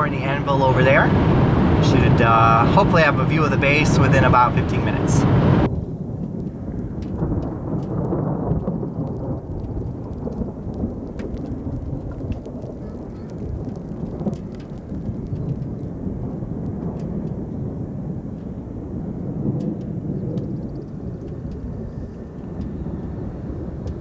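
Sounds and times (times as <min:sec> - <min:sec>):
thunder rumbling: 0:00.0 - 0:24.0
faint ticks: 0:09.6 - 0:15.7.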